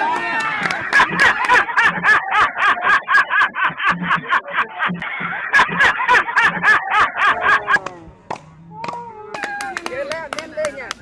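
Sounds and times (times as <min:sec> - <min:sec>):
person laughing hard: 0:00.7 - 0:08.0.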